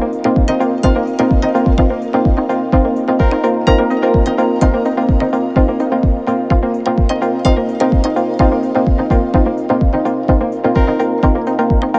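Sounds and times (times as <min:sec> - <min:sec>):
electronic music with kick drum: 0:00.0 - 0:11.9.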